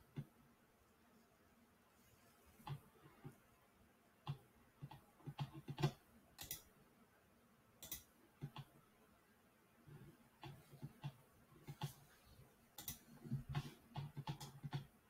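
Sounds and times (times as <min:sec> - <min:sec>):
computer mouse clicks: 0:02.6 - 0:03.3, 0:04.2 - 0:06.7, 0:07.8 - 0:08.8, 0:10.4 - 0:12.1, 0:12.8 - 0:15.0.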